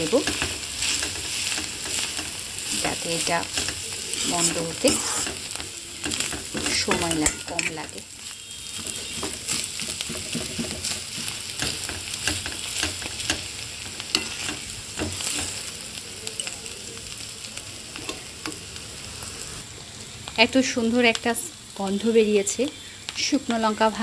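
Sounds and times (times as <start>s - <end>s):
food sizzling in oil: 0.0s - 24.0s
ladle scraping a wok: 0.2s - 8.1s, 14.0s - 15.7s.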